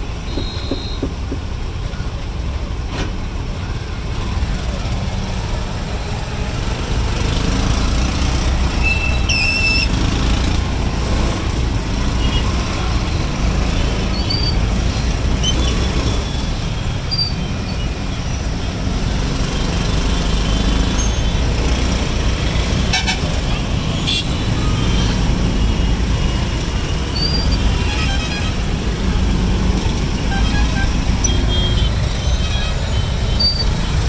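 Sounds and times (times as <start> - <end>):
auto-rickshaw engine running: 0.0 - 34.0
motorcycles and cars droning: 18.5 - 32.2.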